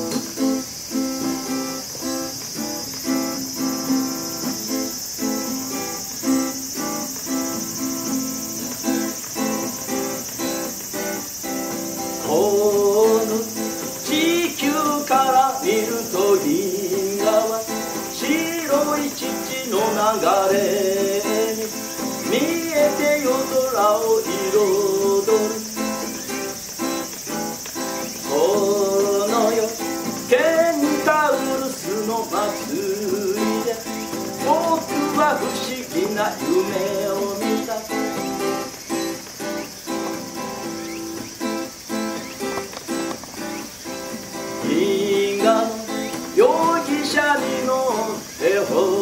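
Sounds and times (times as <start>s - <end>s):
acoustic guitar strumming: 0.0s - 49.0s
man singing: 12.0s - 26.6s, 27.8s - 38.7s, 44.5s - 49.0s.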